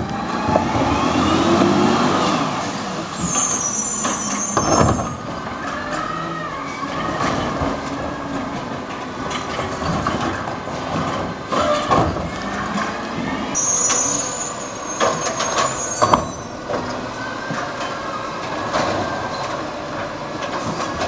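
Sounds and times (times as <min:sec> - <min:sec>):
high brake squeal: 0:00.0 - 0:07.6, 0:13.5 - 0:19.7
wavering squeal: 0:00.0 - 0:07.6, 0:13.5 - 0:18.4
garbage truck engine running: 0:00.0 - 0:21.0.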